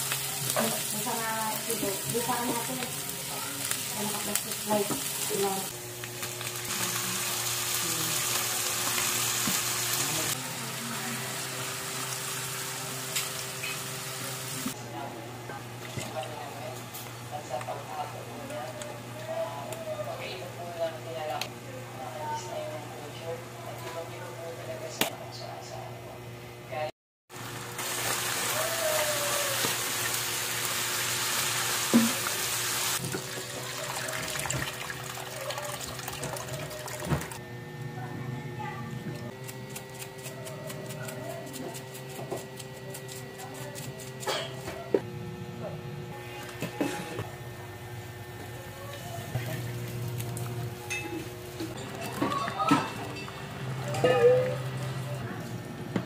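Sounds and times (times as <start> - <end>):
meat sizzling in hot oil: 0.0 - 14.8, 27.4 - 36.0
water poured into pan: 33.1 - 37.4.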